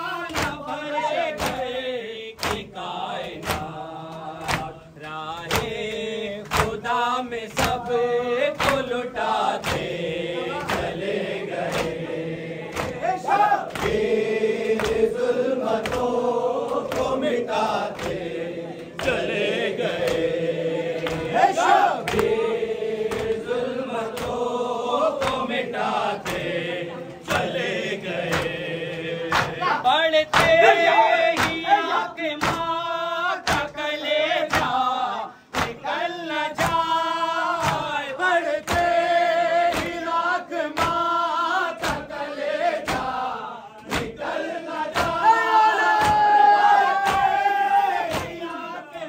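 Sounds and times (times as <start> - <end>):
mourners chanting: 0.0 - 49.0
rhythmic chest-beating slaps: 0.0 - 49.0.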